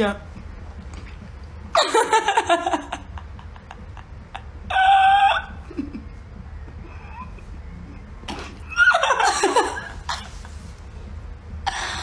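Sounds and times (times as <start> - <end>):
woman laughing: 1.8 - 6.2, 8.9 - 10.5.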